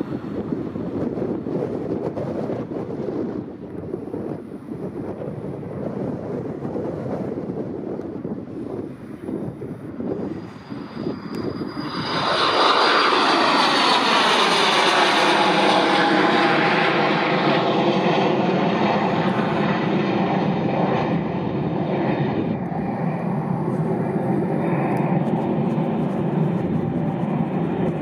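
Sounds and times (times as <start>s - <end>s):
jet engines passing overhead: 0.0s - 28.0s.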